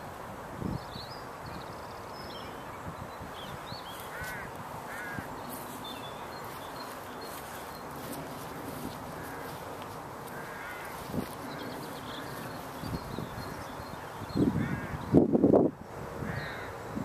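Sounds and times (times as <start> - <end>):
steady outdoor hiss: 0.0 - 17.0
short arched bird calls: 3.8 - 15.2
high bird chirps: 10.9 - 15.2.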